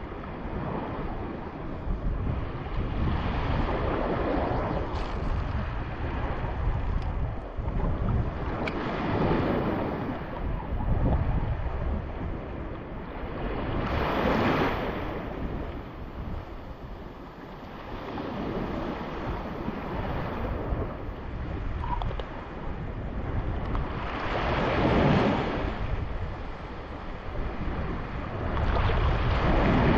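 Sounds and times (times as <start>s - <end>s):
waves washing onto shore: 0.0s - 29.9s
wind rumbling on microphone: 0.0s - 29.9s.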